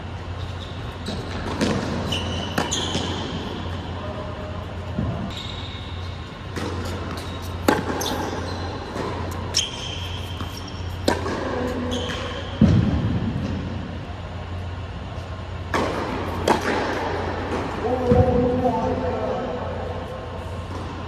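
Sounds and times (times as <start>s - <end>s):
steady low hum: 0.0s - 21.0s
tennis ball struck by rackets: 1.4s - 3.4s, 6.5s - 13.6s, 15.7s - 18.3s.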